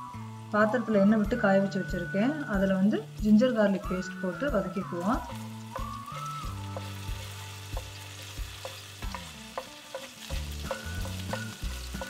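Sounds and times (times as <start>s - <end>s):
paste sizzling in hot oil: 0.0s - 12.0s
spatula knocking and scraping pan: 6.7s - 12.0s.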